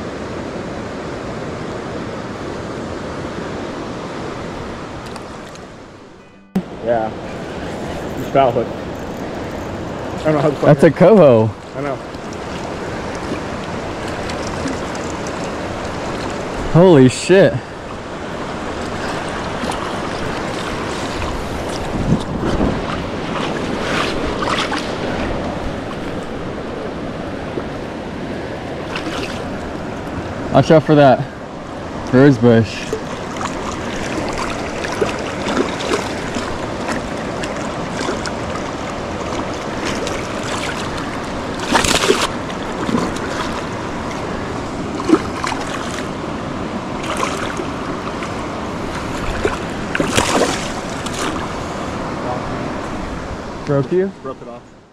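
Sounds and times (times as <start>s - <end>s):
creek current rushing: 0.0s - 54.9s
river flowing: 0.0s - 54.9s
wind buffeting microphone: 7.0s - 30.5s.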